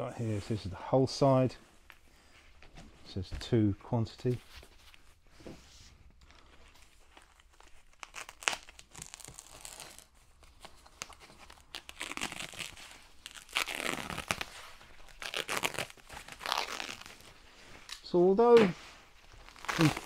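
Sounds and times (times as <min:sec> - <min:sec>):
packing wrap crinkling and tearing: 0:06.8 - 0:18.0, 0:19.2 - 0:20.0.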